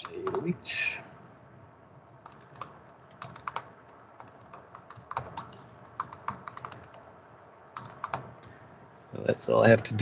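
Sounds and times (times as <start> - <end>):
typing on computer keyboard: 0.0 - 0.5, 2.2 - 7.0, 7.8 - 8.5.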